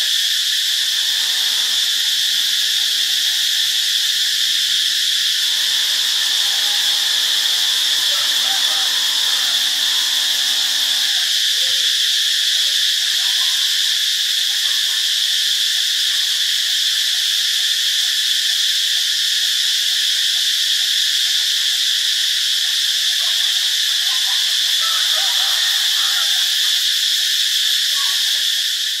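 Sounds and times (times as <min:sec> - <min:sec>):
cicadas buzzing: 0:00.0 - 0:29.0.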